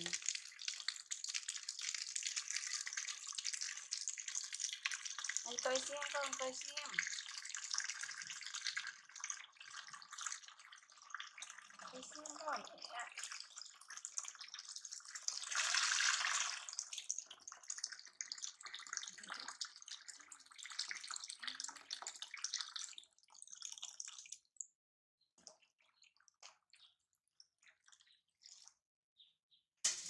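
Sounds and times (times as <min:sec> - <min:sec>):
tap water splashing into basin: 0:00.0 - 0:10.7
water dripping: 0:00.0 - 0:24.8, 0:25.4 - 0:28.8.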